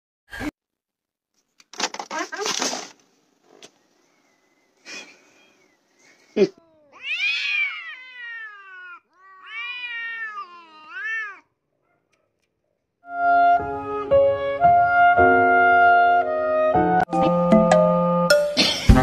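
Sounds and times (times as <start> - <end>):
cats caterwauling: 6.5 - 11.5.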